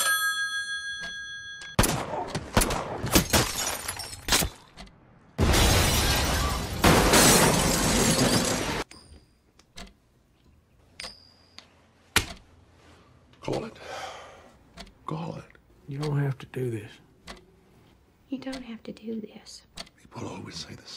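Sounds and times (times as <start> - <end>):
glass shattering: 3.1 - 4.7, 5.4 - 8.9
car crash with crumpling metal: 5.4 - 8.9.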